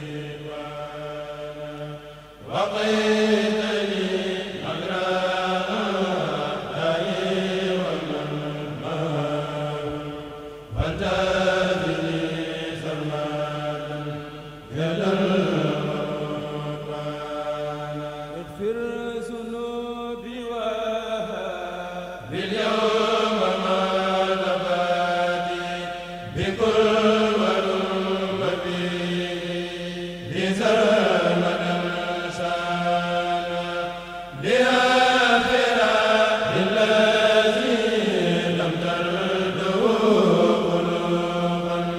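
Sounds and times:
men chanting together: 0.0 - 41.9.

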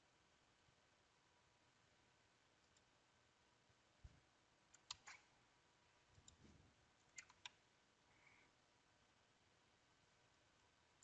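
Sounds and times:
computer mouse clicks: 2.6 - 2.9, 4.7 - 5.2, 7.0 - 7.6.

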